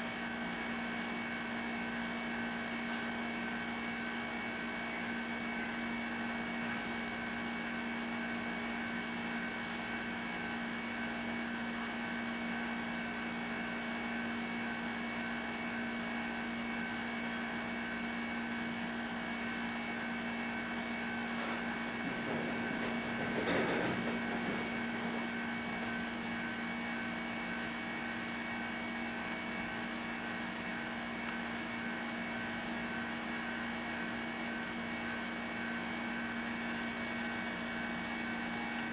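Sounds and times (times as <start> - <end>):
electrical hum: 16.8 - 33.2.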